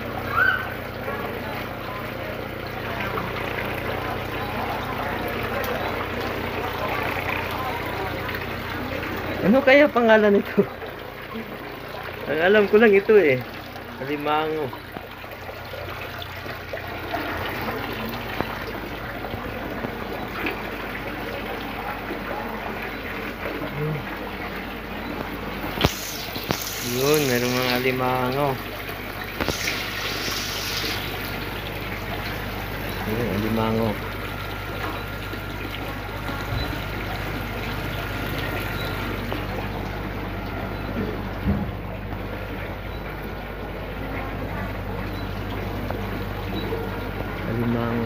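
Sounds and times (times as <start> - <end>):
water trickling and pouring: 0.0 - 48.0
faint voices: 0.3 - 9.6, 17.0 - 28.6
small splashy clicks: 25.2 - 28.0, 29.4 - 31.6.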